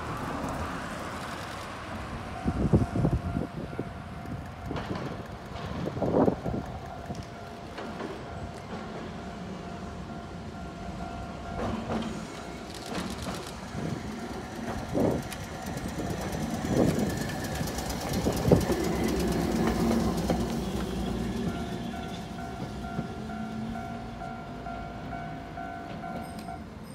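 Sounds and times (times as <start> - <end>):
streetcar running on street track: 0.0 - 26.9
wheels clanking on rail joints: 2.6 - 26.9.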